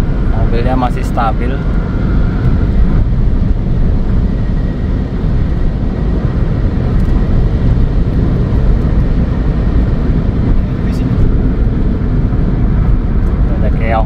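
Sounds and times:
road and wind noise in car: 0:00.0 - 0:14.0.

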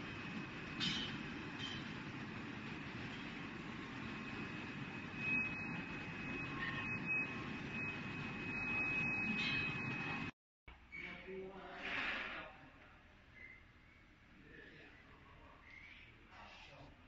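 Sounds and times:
thin high whine: 0:00.0 - 0:10.3.

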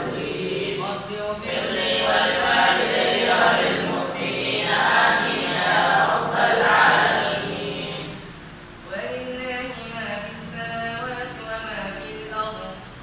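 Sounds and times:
male voices chanting in unison: 0:00.0 - 0:08.2.

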